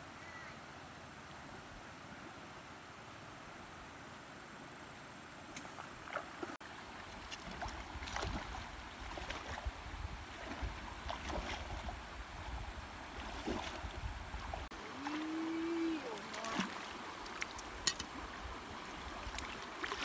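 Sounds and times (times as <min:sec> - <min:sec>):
water splashing around legs: 0:05.6 - 0:09.7, 0:10.3 - 0:12.0, 0:13.2 - 0:18.2, 0:18.8 - 0:20.0.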